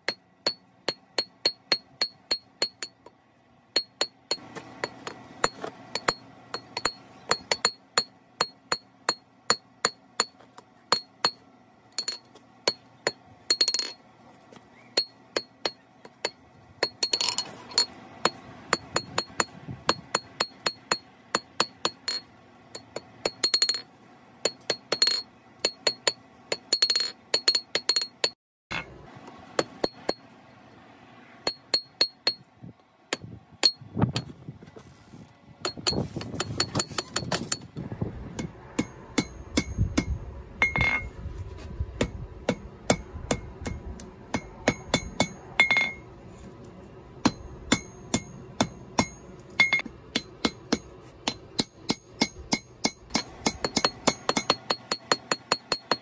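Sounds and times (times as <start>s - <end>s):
hammer blows on anvil: 35.6s - 41.2s, 47.2s - 56.0s.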